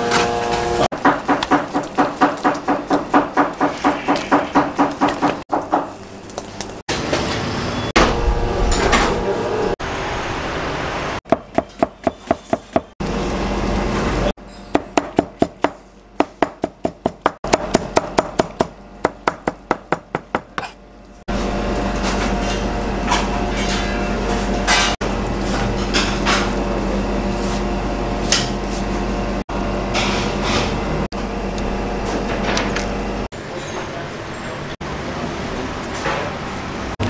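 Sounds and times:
knife chopping on cutting board: 14.8 - 20.8.

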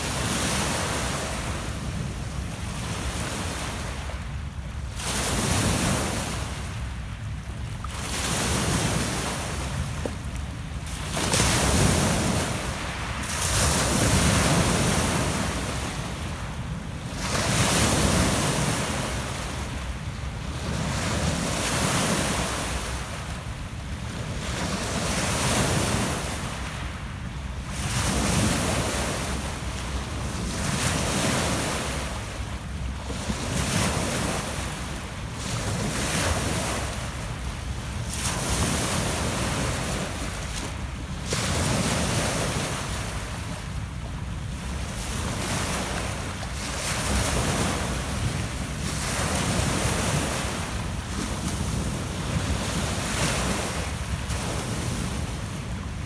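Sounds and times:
waves breaking on pebble beach: 10.9 - 19.8.

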